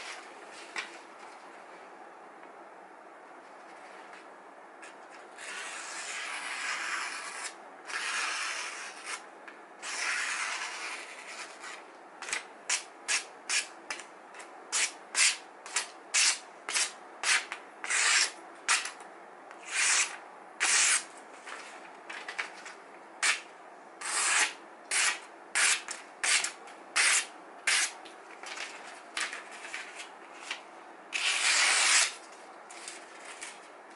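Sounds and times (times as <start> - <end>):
knife slicing through paper: 31.2 - 33.6.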